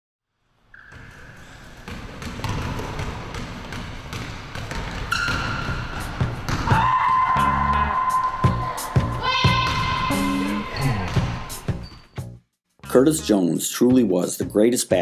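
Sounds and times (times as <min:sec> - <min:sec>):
sneakers squeaking: 0:00.7 - 0:12.4
basketball bouncing on wooden floor: 0:01.8 - 0:07.2, 0:11.0 - 0:11.9.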